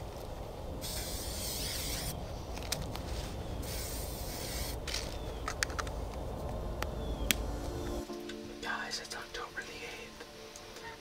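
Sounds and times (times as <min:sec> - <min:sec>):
aerosol spray can hissing: 0:00.8 - 0:02.1, 0:03.6 - 0:04.8.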